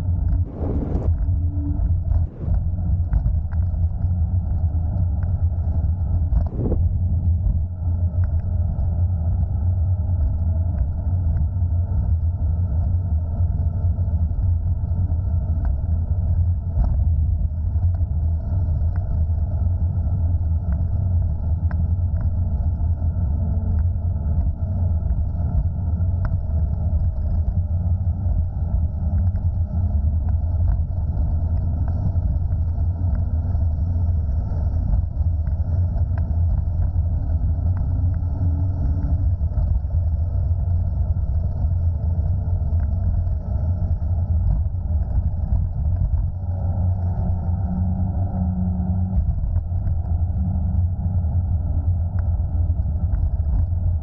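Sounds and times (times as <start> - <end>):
wind buffeting microphone: 0.0 - 5.2, 6.0 - 7.8
road noise: 0.3 - 3.2.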